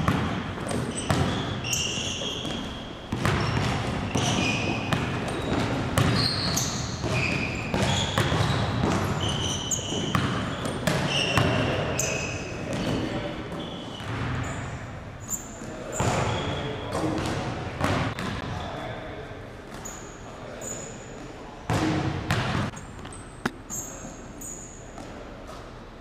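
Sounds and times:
basketball bouncing on wooden floor: 0.0 - 1.6, 2.4 - 11.6, 21.7 - 22.7
sneakers squeaking: 0.0 - 18.8, 19.6 - 25.9.

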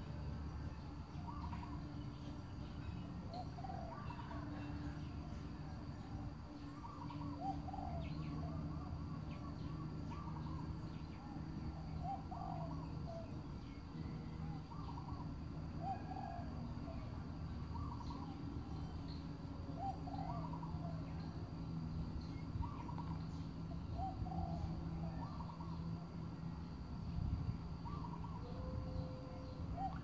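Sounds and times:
steady low hum: 0.0 - 30.0
birds calling: 1.1 - 4.9, 6.6 - 16.9, 17.7 - 21.4, 22.2 - 25.9, 27.8 - 30.0.

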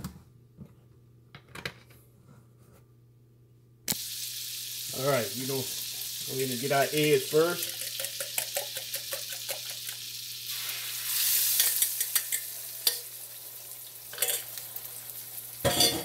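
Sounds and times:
eggs sizzling in a wok: 3.9 - 16.0.

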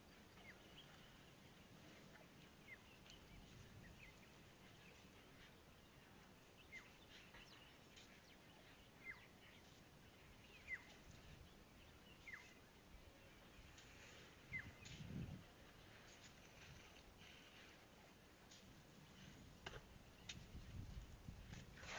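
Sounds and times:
faint bird calls: 0.0 - 18.0.

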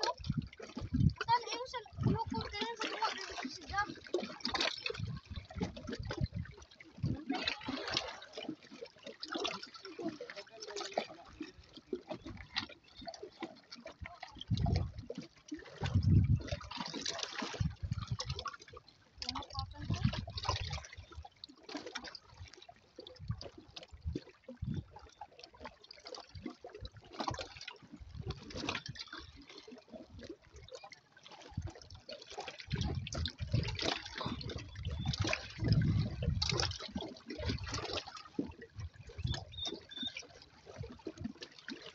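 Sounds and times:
small waves lapping on rocks: 0.0 - 41.9.

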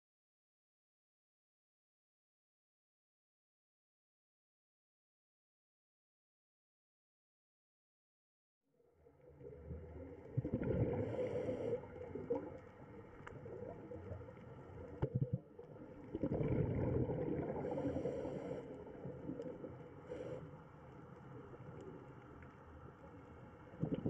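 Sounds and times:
underwater rumble: 9.1 - 24.0
faint clicks: 11.9 - 15.8, 18.7 - 24.0.

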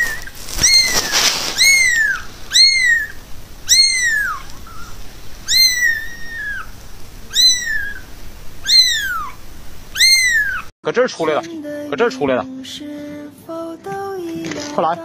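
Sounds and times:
kitten meowing: 0.0 - 10.7.

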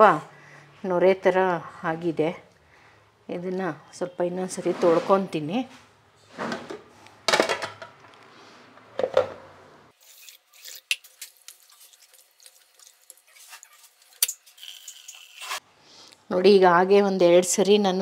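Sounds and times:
water running: 10.0 - 15.6
water splashing in steel pot: 10.0 - 15.6.

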